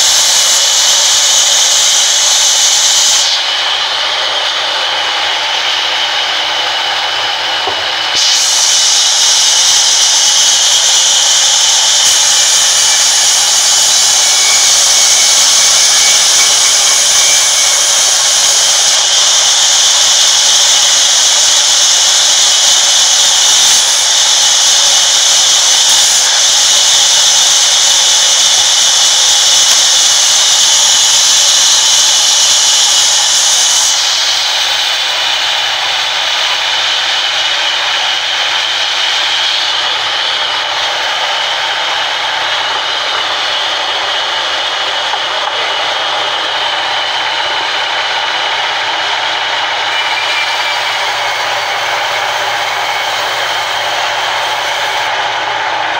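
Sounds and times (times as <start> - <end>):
band saw cutting through wood: 0.0 - 55.9.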